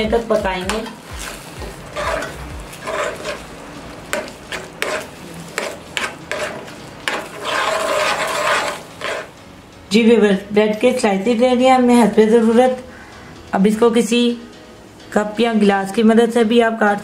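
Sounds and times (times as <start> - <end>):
spoon stirring thick filling: 0.4 - 9.4.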